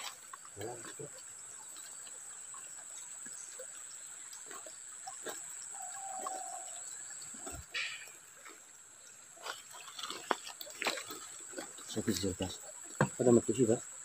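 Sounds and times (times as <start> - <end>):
water trickling over stones: 0.0 - 14.0.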